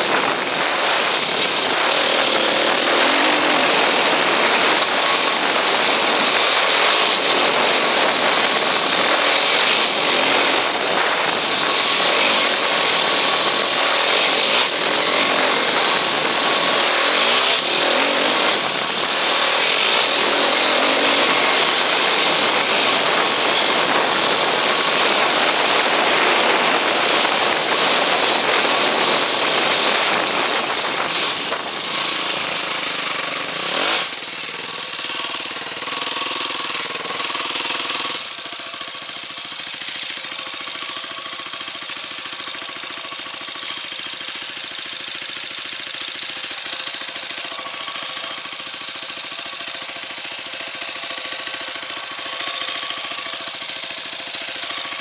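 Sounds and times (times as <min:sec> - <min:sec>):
dirt bike engine running: 0:00.0 - 0:55.0.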